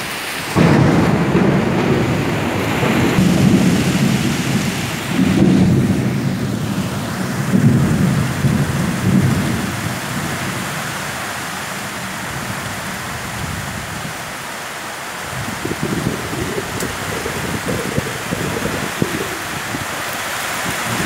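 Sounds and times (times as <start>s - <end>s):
heavy rain pouring: 0.0s - 21.0s
thunder rumbling: 0.5s - 10.6s, 15.2s - 21.0s.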